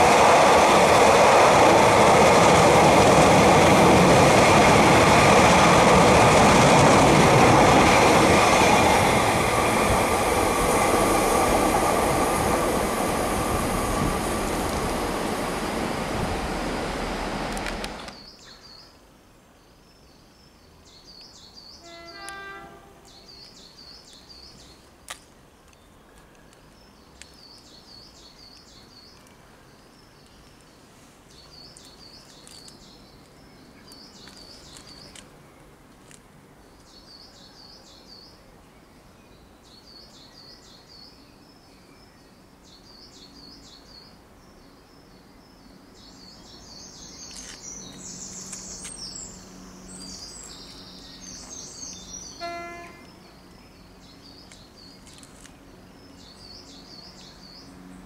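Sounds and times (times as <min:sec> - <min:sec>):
train passing: 0:00.0 - 0:18.3, 0:45.8 - 0:58.0
small birds chirping: 0:23.0 - 0:35.7, 0:36.7 - 0:58.0.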